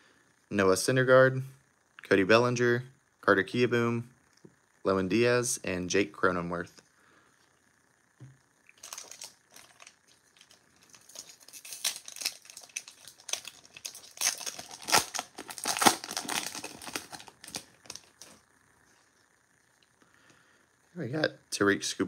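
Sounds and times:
plastic wrapper crinkling: 8.7s - 18.4s
wrapper tearing: 8.8s - 18.4s.

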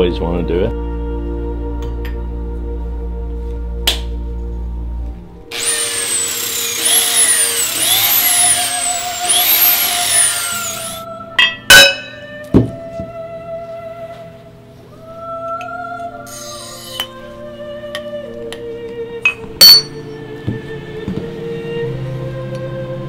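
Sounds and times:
background music: 0.0s - 23.0s
drill sanding glass whine: 5.5s - 11.0s, 16.3s - 17.1s.

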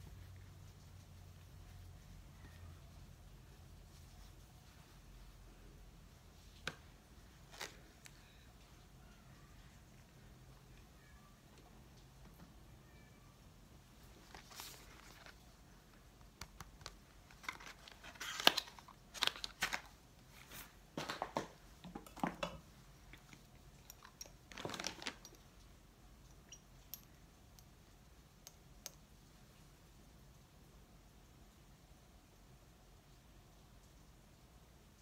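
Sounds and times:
rustling and crinkling: 0.0s - 10.4s, 13.8s - 25.8s.

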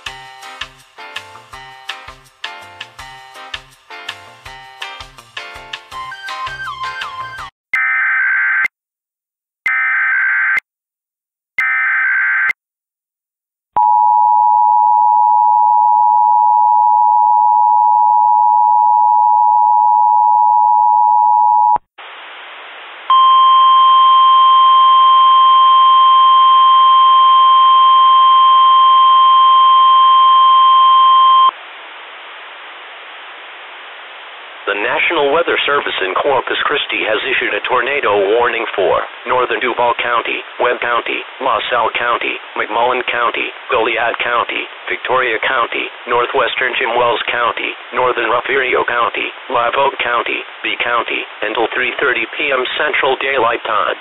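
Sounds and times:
static hiss: 22.0s - 23.2s
two-tone attention signal: 23.1s - 31.5s.

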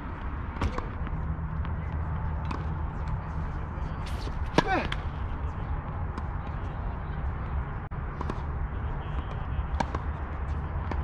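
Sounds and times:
tennis balls struck by racquets: 4.1s - 6.3s, 9.2s - 11.0s.

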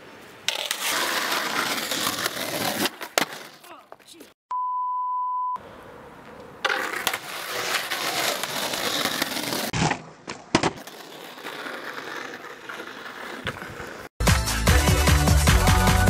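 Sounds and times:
skateboard wheels rolling on asphalt: 0.0s - 4.2s, 5.6s - 14.2s
skateboard landing clack: 8.9s - 10.9s
music: 14.2s - 16.0s.

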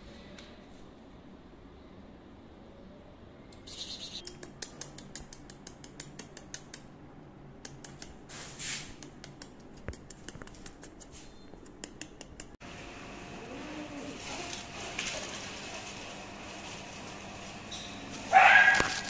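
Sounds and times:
dog claws clicking on tile: 4.2s - 6.9s, 7.6s - 8.2s, 9.0s - 12.6s.

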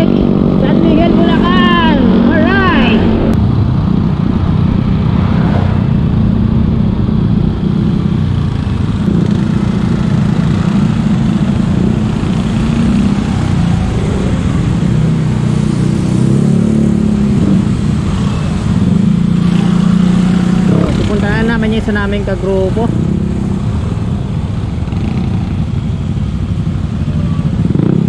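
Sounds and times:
road noise: 0.0s - 28.0s.

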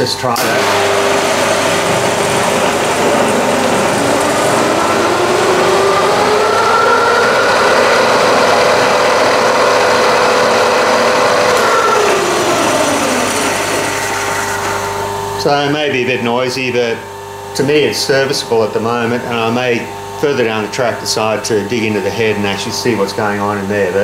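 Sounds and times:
milling machine running: 0.0s - 15.8s.

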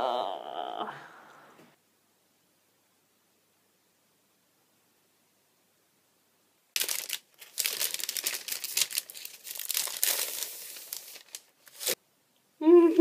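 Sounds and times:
plastic bag crinkling: 6.8s - 12.0s.

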